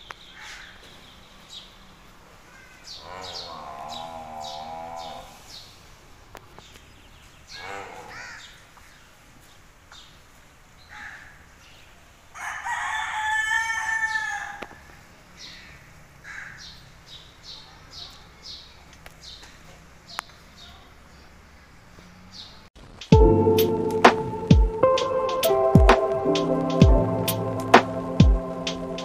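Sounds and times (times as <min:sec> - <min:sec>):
small birds chirping: 0:00.0 - 0:12.1, 0:14.9 - 0:23.7
rooster crowing: 0:12.3 - 0:14.8.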